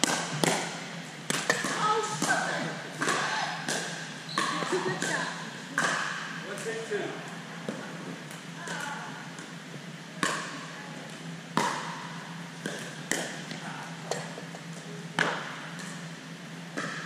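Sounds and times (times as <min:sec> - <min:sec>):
paddles striking a ball: 0:00.0 - 0:06.4, 0:11.6 - 0:14.5
steady low hum: 0:00.0 - 0:17.0
quiet ball taps: 0:12.6 - 0:14.5.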